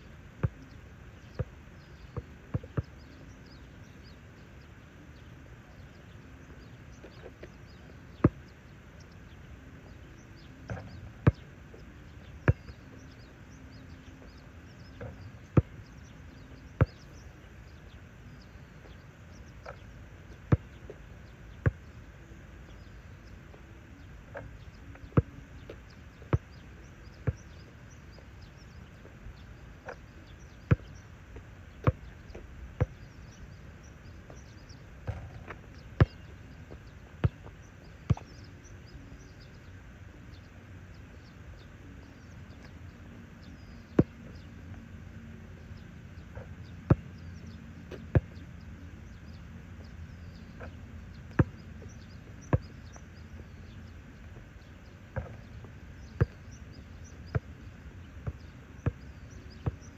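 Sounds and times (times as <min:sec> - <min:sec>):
basketball bouncing on asphalt: 0:00.4 - 0:03.0, 0:08.2 - 0:08.5, 0:10.7 - 0:11.5, 0:12.4 - 0:13.2, 0:15.0 - 0:15.8, 0:16.8 - 0:17.2, 0:20.4 - 0:21.0, 0:21.6 - 0:21.9, 0:24.3 - 0:26.6, 0:27.2 - 0:27.6, 0:29.8 - 0:33.6, 0:34.3 - 0:38.4, 0:43.5 - 0:44.5, 0:46.8 - 0:48.4, 0:50.6 - 0:54.5, 0:55.2 - 0:59.9.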